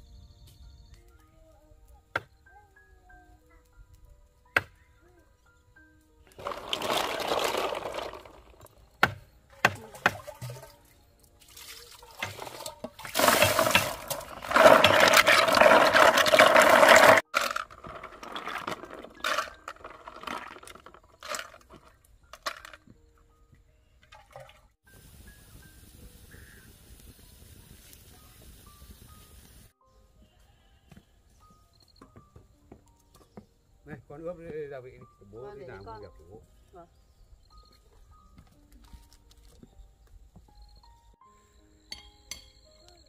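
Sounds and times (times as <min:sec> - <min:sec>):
soft splashing: 0:06.3 - 0:08.7, 0:09.5 - 0:21.9, 0:24.1 - 0:24.8
water pouring into plastic basin: 0:06.3 - 0:08.7, 0:09.8 - 0:22.8, 0:24.1 - 0:24.7.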